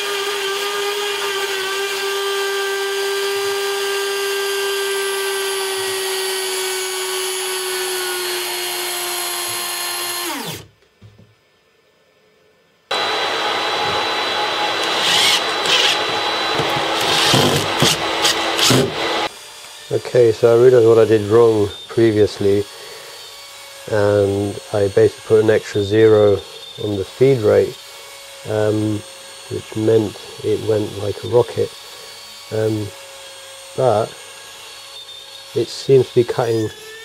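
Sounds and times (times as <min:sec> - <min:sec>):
router spindle whine milling metal: 0:00.0 - 0:10.6, 0:12.9 - 0:27.7
steady machine noise: 0:12.9 - 0:19.3.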